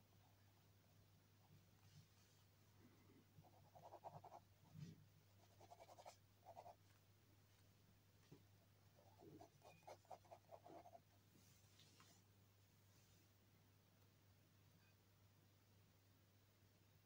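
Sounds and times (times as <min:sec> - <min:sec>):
steady low hum: 0:00.0 - 0:14.6
pen scratching on paper: 0:03.4 - 0:04.4, 0:05.4 - 0:06.8, 0:09.0 - 0:11.0.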